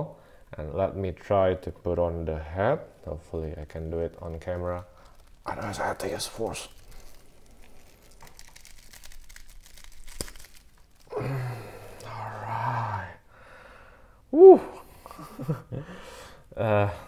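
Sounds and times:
plastic figure rustling and clicks: 3.0 - 11.1
man straining voice: 11.1 - 13.2, 14.3 - 14.8
short vocal exclamation: 14.3 - 14.8.

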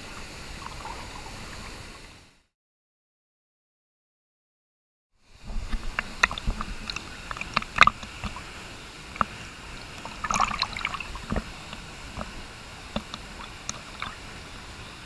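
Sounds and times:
rush of moving water: 0.0 - 2.4, 5.2 - 15.0
water sloshing and splashing: 5.3 - 15.0.

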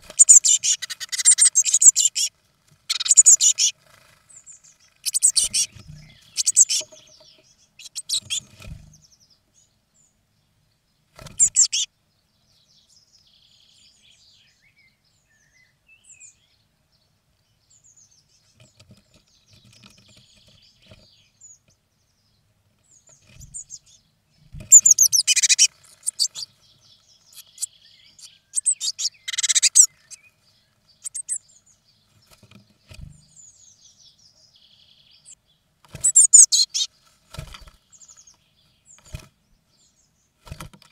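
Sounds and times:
bird chicks chirping: 0.0 - 40.9
low thumps in nest box: 32.3 - 33.3.

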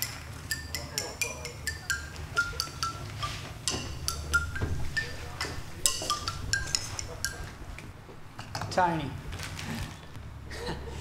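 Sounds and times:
glockenspiel notes: 0.1 - 7.6.

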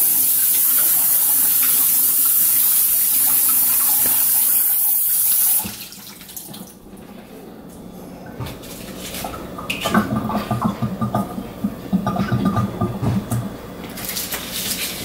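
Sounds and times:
faucet running into sink: 0.0 - 6.8.

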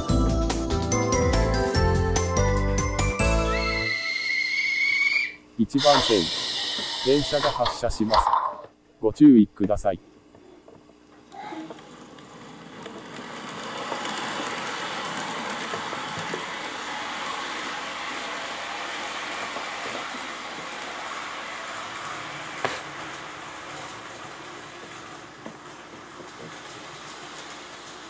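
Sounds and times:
model train running on rails: 5.8 - 7.8, 11.7 - 28.0.

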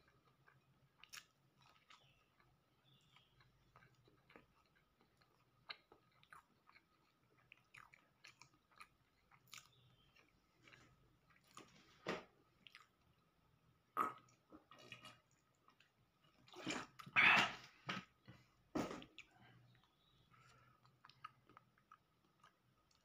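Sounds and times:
chewing with wet mouth clicks: 0.0 - 11.7, 12.6 - 13.2, 19.1 - 23.0.

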